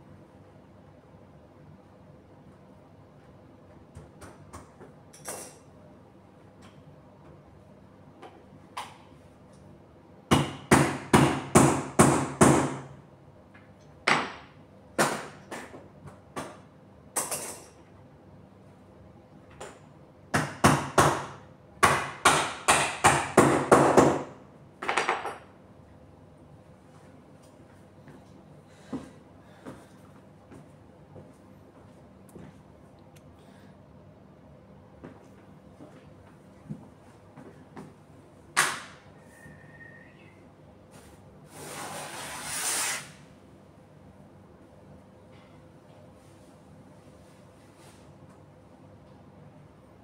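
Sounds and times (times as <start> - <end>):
hammer striking bed frame: 10.3 - 13.0, 20.3 - 24.4.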